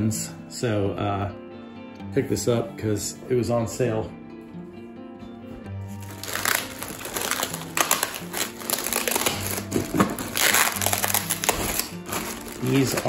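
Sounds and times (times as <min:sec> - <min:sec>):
soft background music: 0:00.0 - 0:13.0
plastic packing crinkling: 0:06.0 - 0:13.0.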